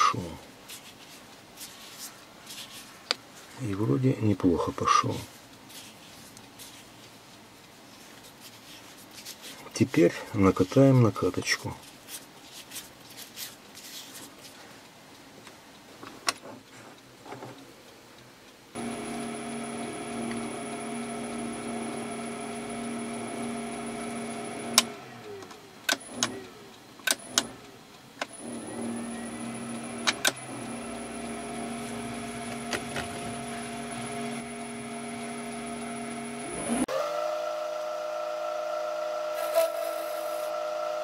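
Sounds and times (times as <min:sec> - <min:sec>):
lathe running with hum and whine: 0:18.8 - 0:25.4, 0:28.3 - 0:41.0
lathe switch click: 0:24.7 - 0:25.0, 0:25.9 - 0:27.6.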